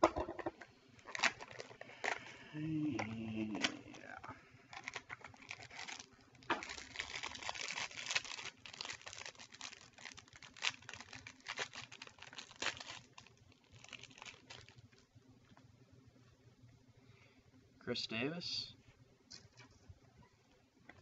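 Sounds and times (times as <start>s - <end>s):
wrapper being torn and crinkled: 1.0s - 2.3s, 4.7s - 15.0s.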